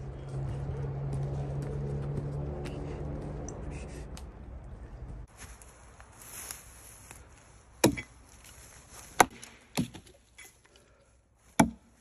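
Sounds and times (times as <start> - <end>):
axe chopping wood: 7.8 - 8.2, 9.1 - 10.2, 11.6 - 12.0.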